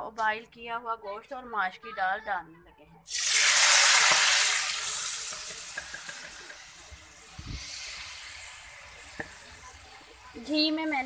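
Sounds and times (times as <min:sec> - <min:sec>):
food sizzling in hot oil: 0:03.1 - 0:11.0.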